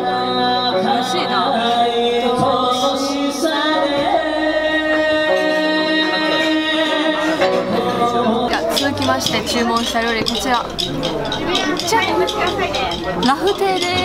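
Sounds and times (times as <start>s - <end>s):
steady musical accompaniment: 0.0s - 14.0s.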